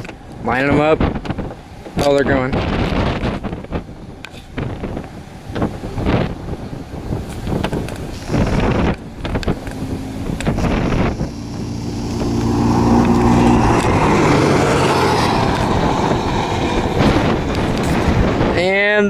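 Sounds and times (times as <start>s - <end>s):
wind buffeting microphone: 0.0s - 19.0s
atv engines at high revs: 7.4s - 18.3s.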